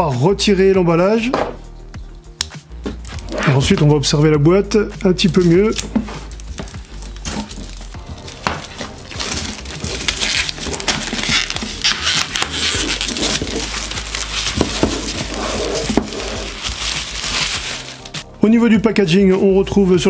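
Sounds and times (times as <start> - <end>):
plastic shrink-wrap crinkling: 5.3 - 18.2.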